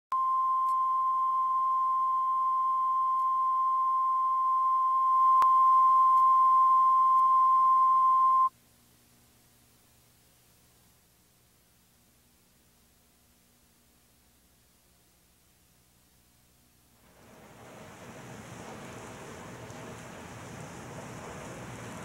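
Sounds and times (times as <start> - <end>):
steady line-up tone: 0.1 - 8.5.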